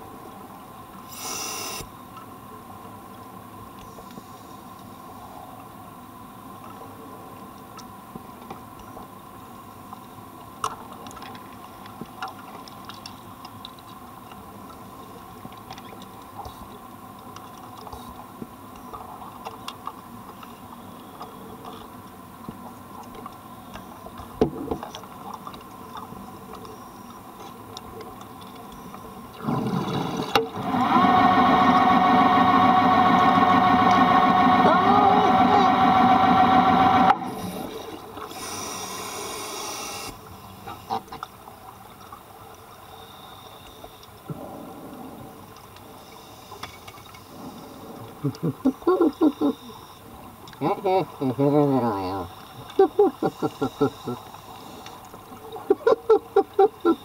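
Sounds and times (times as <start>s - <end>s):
underwater hiss: 1.0s - 1.9s, 37.3s - 40.9s, 45.9s - 47.9s
loud droning hum: 29.0s - 40.5s.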